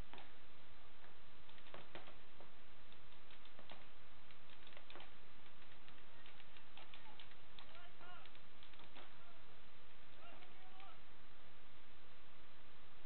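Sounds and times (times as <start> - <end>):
paintball markers firing: 1.4 - 9.2.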